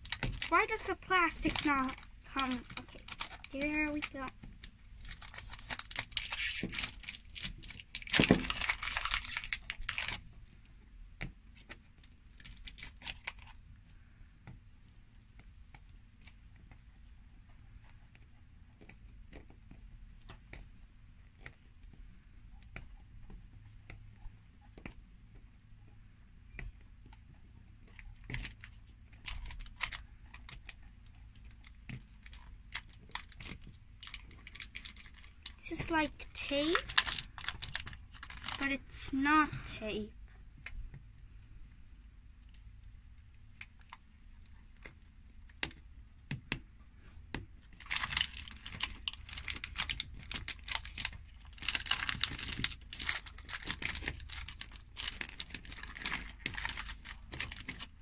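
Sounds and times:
plastic wrapper crinkling and tearing: 0.0s - 10.4s, 11.6s - 13.7s, 27.8s - 40.1s, 47.6s - 58.0s
small clicks and soft rustles: 0.0s - 58.0s.

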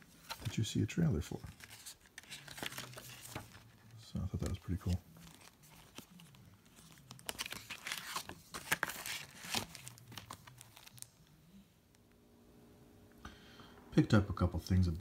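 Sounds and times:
crinkling and rustling: 0.0s - 11.2s.

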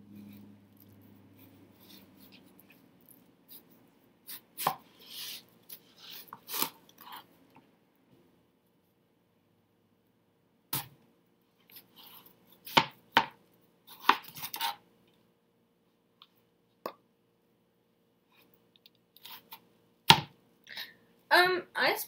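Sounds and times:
faint steady hum: 0.0s - 22.0s
knife scraping melon rind: 0.2s - 7.3s, 13.9s - 14.8s.

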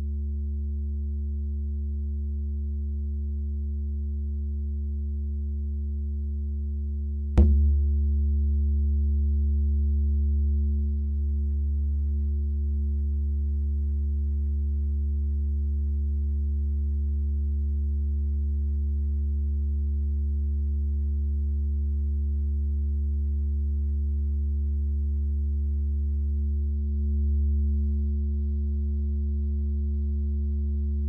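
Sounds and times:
low electronic tone: 7.4s - 7.9s.

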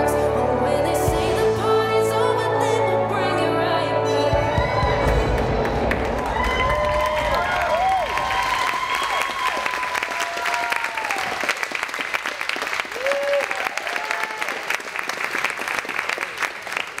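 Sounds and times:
audience applauding: 5.7s - 17.0s
voices cheering: 5.9s - 11.6s, 12.8s - 14.8s.

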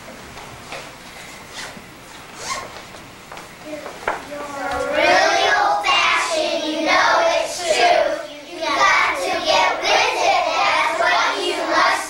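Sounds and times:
young children singing: 4.3s - 12.0s.

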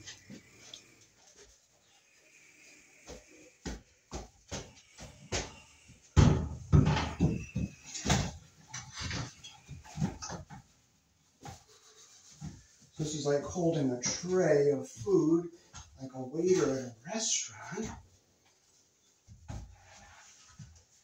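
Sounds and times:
heavy thuds: 3.1s - 8.4s
knocks and rattles from handling: 6.2s - 10.8s.

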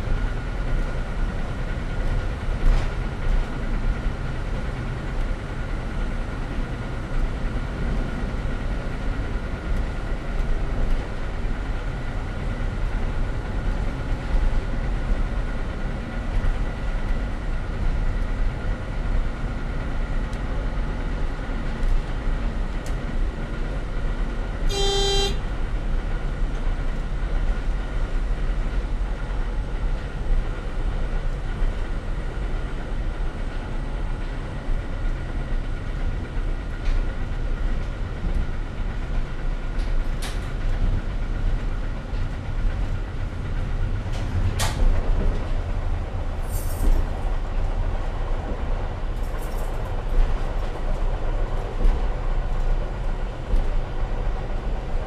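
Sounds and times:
diesel railcar rumble: 0.0s - 55.0s
train horn toot: 24.7s - 25.5s.

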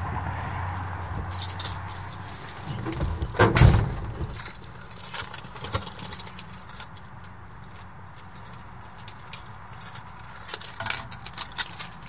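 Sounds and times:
light metallic clicks and jingling: 1.1s - 12.0s
heavy thump: 2.7s - 4.5s.

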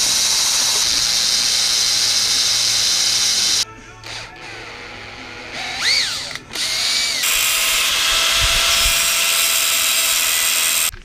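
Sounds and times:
angle grinder cutting steel: 0.0s - 3.6s, 5.5s - 11.0s
cordless drill boring steel: 0.0s - 11.0s.

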